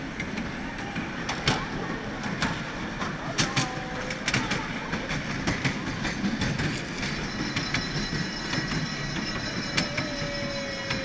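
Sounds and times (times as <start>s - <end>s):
miniature train rumbling: 0.0s - 11.0s
train wheel clicks: 3.4s - 11.0s.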